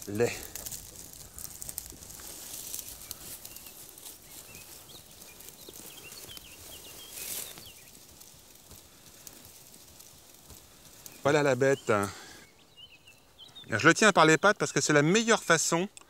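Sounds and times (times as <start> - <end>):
grass and leaves rustling: 0.0 - 16.0
faint bird chirps: 2.8 - 8.0, 11.0 - 15.6.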